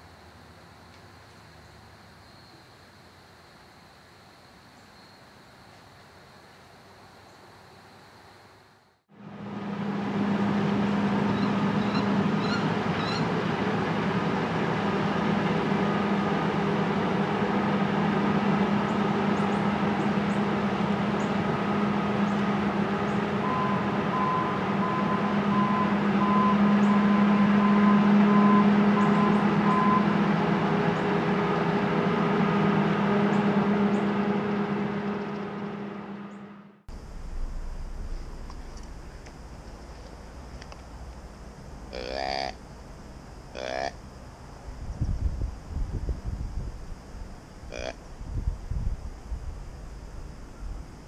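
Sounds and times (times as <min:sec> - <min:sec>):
engine humming: 0:09.1 - 0:51.0.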